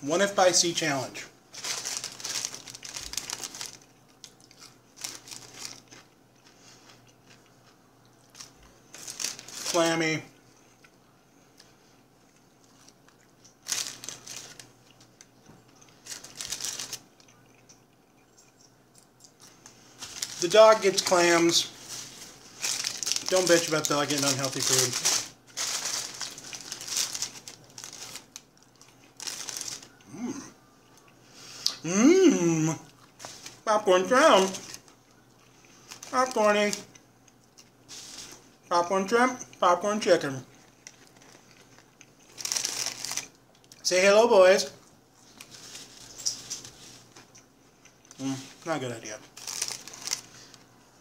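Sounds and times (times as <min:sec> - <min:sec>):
paper bag rustling and crinkling: 0:01.5 - 0:03.9, 0:04.9 - 0:06.8, 0:08.3 - 0:10.1, 0:13.6 - 0:14.7, 0:16.0 - 0:17.1, 0:19.6 - 0:28.4, 0:29.0 - 0:29.9, 0:33.2 - 0:34.9, 0:35.7 - 0:36.9, 0:37.9 - 0:38.4, 0:40.6 - 0:43.3, 0:45.2 - 0:47.3, 0:48.1 - 0:50.6.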